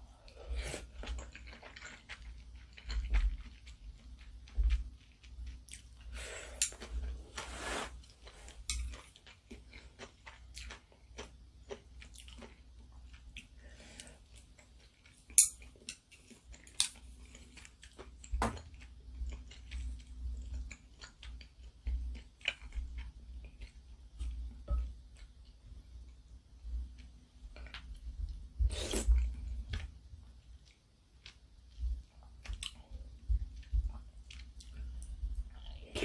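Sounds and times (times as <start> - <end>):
chewing noodles: 0.8 - 7.1.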